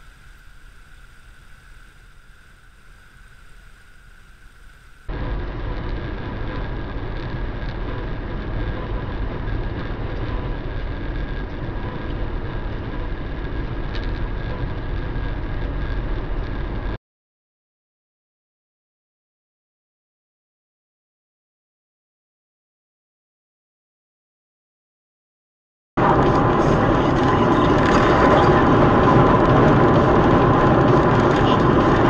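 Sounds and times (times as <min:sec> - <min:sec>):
car road and engine noise: 0:00.0 - 0:17.0, 0:26.0 - 0:32.0
faint street hum: 0:00.0 - 0:17.0, 0:26.0 - 0:32.0
thin high whine: 0:00.0 - 0:17.0, 0:26.0 - 0:32.0.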